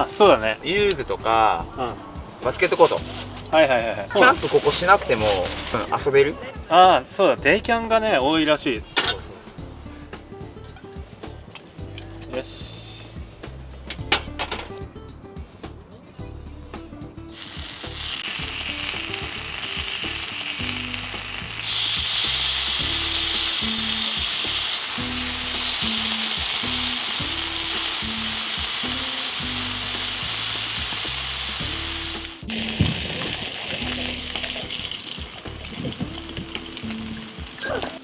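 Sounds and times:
background music: 0.0 - 38.0
meat sizzling on a griddle: 4.2 - 6.0, 17.3 - 37.6.

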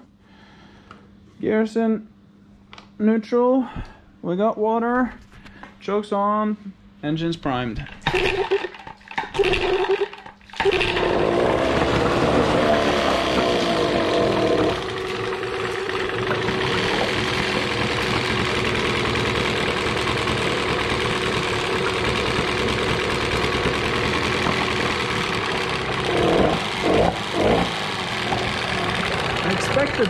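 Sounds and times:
outboard motor idling: 9.3 - 30.0.

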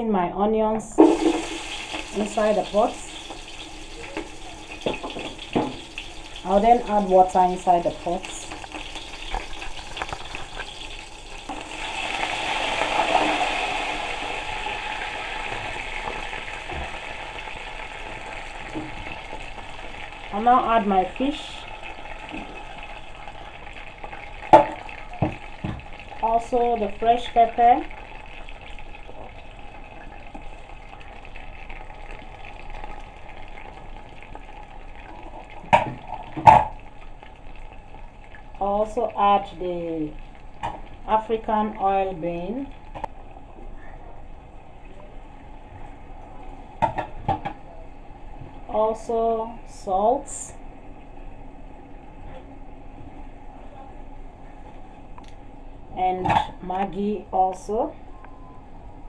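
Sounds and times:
water pouring into hot oil: 1.0 - 43.3
soup simmering and hissing: 1.0 - 55.9.

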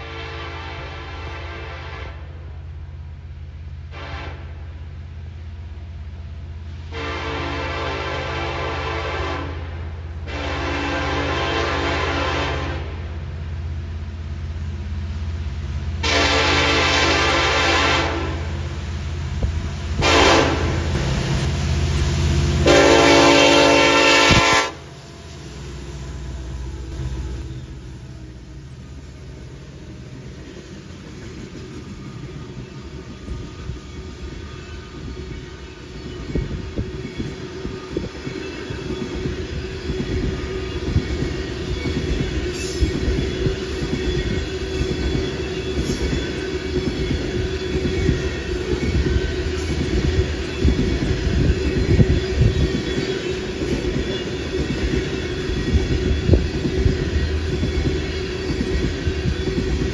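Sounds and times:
locomotive air horn blast: 0.0 - 2.5, 3.9 - 4.8, 6.8 - 13.2, 16.0 - 18.6, 20.0 - 21.1, 22.5 - 25.0
train rumbling past: 0.0 - 59.9.

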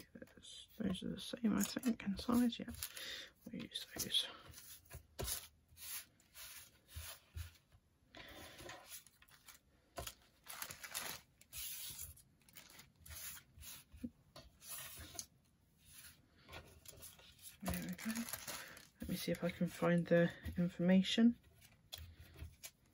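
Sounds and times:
paper and plastic bag rustling: 8.5 - 13.5, 16.6 - 19.8.

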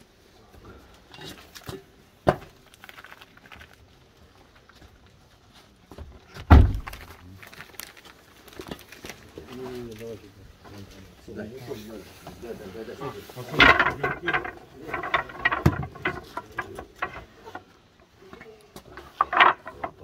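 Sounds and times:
knocks and thuds in car boot: 6.4 - 7.0.

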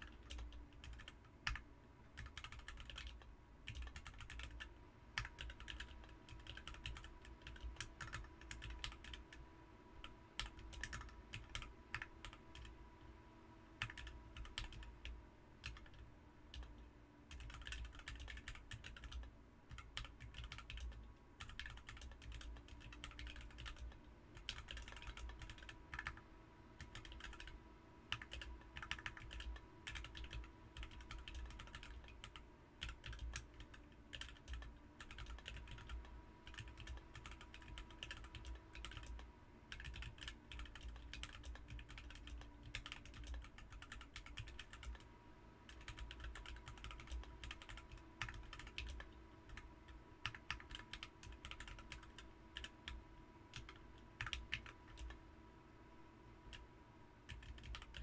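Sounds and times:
mechanical keyboard typing: 0.0 - 1.6, 2.2 - 9.4, 10.0 - 12.7, 13.8 - 26.2, 26.8 - 45.0, 45.7 - 55.2, 57.3 - 58.0.

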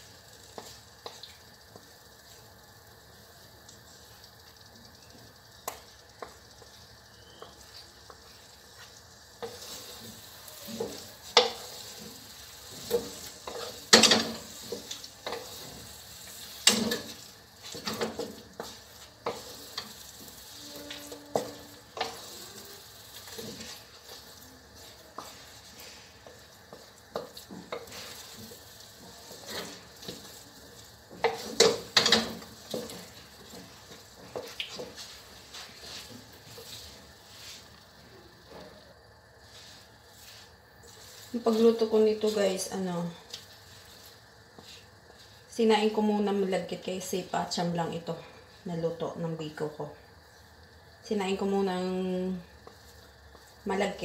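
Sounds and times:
wooden spatulas scraping a wok: 8.8 - 37.8.

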